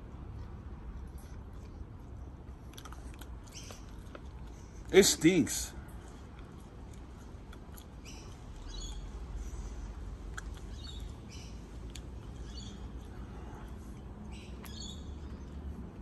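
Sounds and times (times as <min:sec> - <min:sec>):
chewing dried fish crunches: 0:02.6 - 0:04.6, 0:10.2 - 0:11.2.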